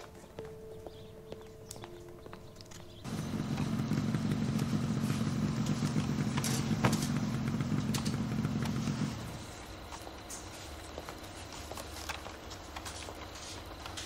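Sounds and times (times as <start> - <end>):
vehicle engine rumbling: 3.0 - 10.3.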